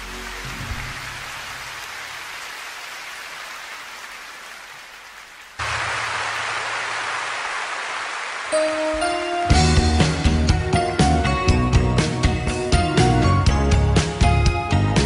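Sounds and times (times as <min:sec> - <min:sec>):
audience applauding: 0:00.0 - 0:09.6
song ending: 0:08.5 - 0:13.5.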